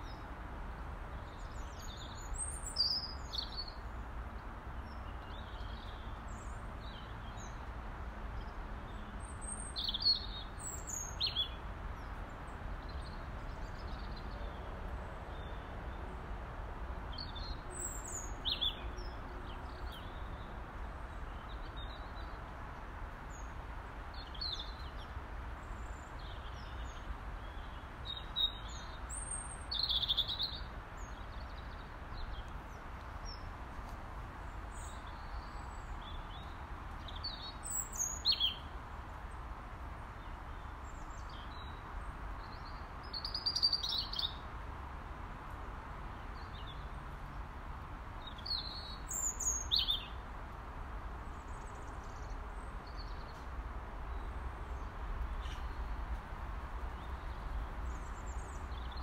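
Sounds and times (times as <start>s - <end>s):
robin singing: 1.3s - 3.9s, 9.4s - 12.1s, 17.1s - 20.4s, 25.7s - 32.4s, 34.7s - 38.7s, 42.4s - 44.5s, 48.2s - 50.2s.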